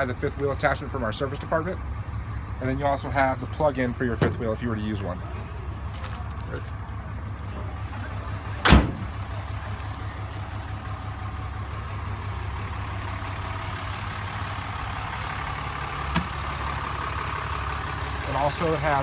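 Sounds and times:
diesel engine idling: 0.0 - 19.0
tailgate slammed shut: 8.6 - 9.2.

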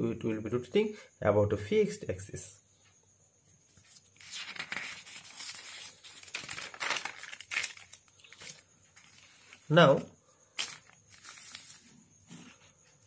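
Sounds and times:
paper rustling and crinkling: 3.8 - 9.8, 10.6 - 12.6
notebook pages turning: 3.9 - 9.6, 10.6 - 11.8.

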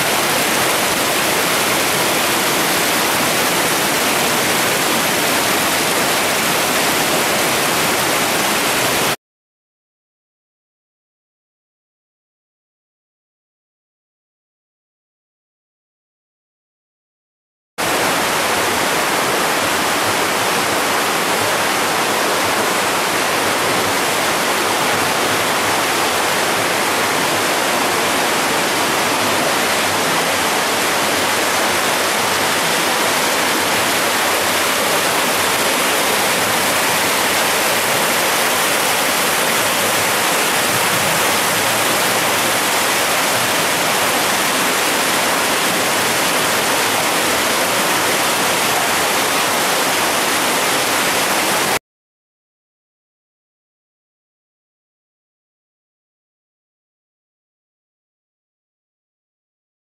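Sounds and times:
stream rushing over boulders: 0.0 - 9.2, 17.8 - 51.8.

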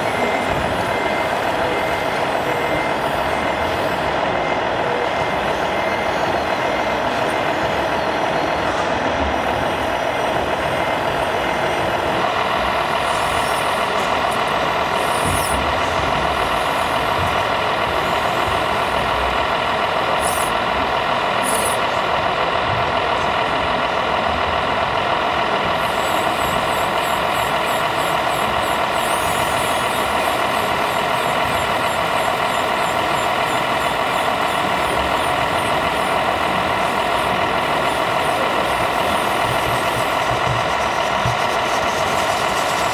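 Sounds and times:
diesel truck engine running: 0.0 - 42.9.

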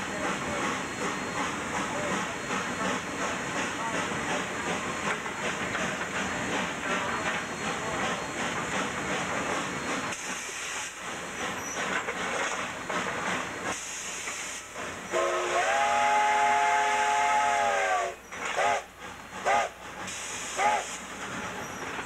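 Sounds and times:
locomotive running noise: 0.0 - 22.0
steam hissing: 0.0 - 22.0
steam whistle blasts: 15.1 - 21.0.

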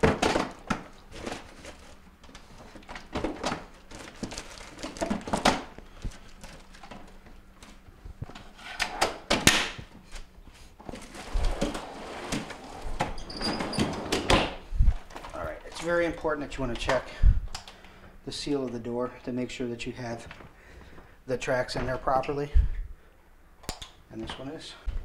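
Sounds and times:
plastic baskets clunking and rattling: 0.0 - 7.2.

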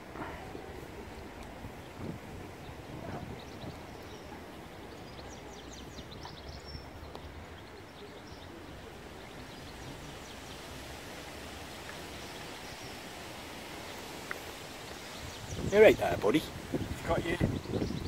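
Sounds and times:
wind rumble on microphone: 0.0 - 5.2, 14.6 - 18.0.

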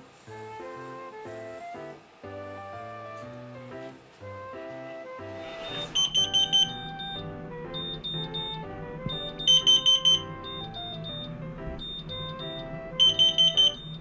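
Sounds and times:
background music: 0.0 - 14.0
alarm rapid high beeps: 5.7 - 14.0.

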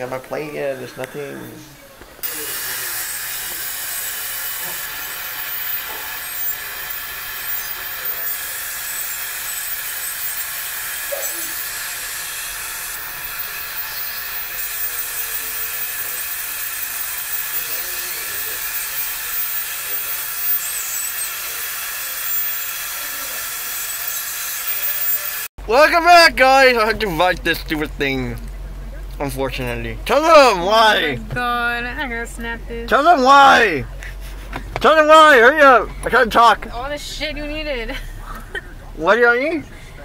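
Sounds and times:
dental air and suction hiss: 2.2 - 25.4.

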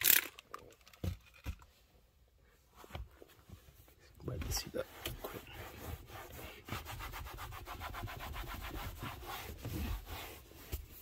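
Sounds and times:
towel scrubbing leather seat: 4.4 - 11.0.

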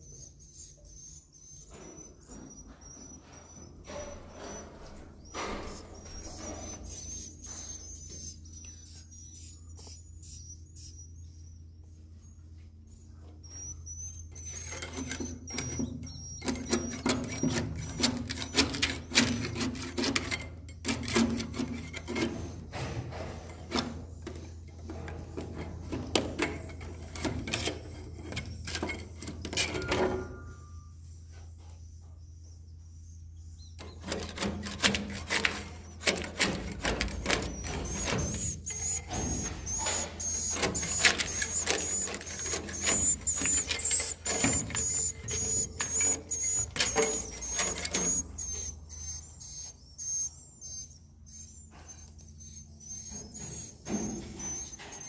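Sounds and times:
metal scraper scraping wood: 14.5 - 30.2, 33.8 - 49.2
swiftlets twittering: 35.3 - 55.0.

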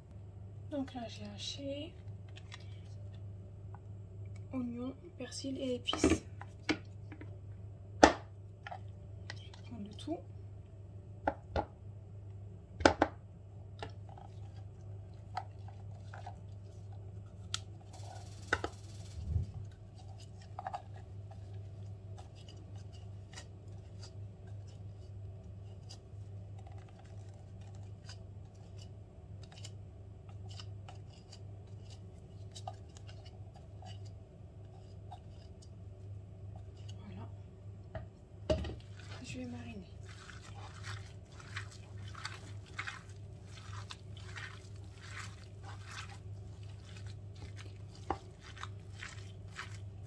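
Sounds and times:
steady low hum: 0.0 - 50.0
plastic bowl clicks and scrapes: 40.0 - 50.0.

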